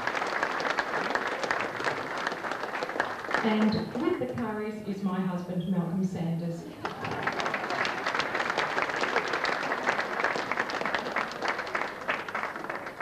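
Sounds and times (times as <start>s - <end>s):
audience applauding: 0.0s - 4.1s, 6.7s - 13.0s.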